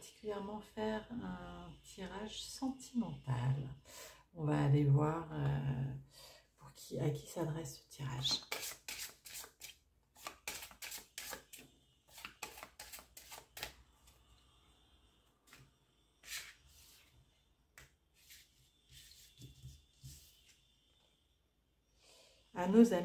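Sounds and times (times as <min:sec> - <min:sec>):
cards shuffled by hand: 0:08.5 - 0:13.8
cards sliding on table: 0:15.5 - 0:17.1, 0:17.8 - 0:20.6.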